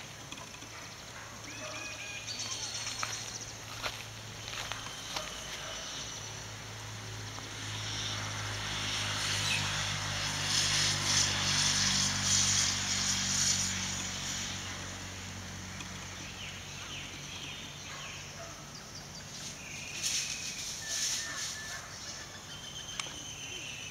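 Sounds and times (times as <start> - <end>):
motor vehicle engine hum: 0.0 - 23.9
bird chirps: 16.2 - 23.9.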